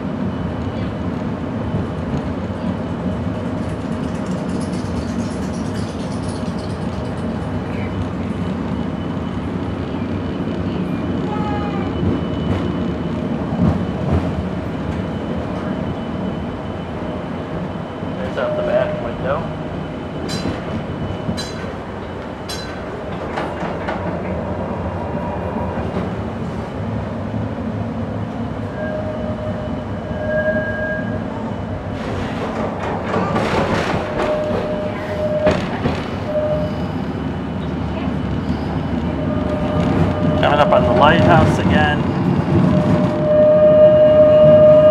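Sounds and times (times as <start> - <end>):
streetcar wheels rumbling on rail: 0.0 - 44.9
streetcar thumps: 9.9 - 28.6, 31.2 - 43.5.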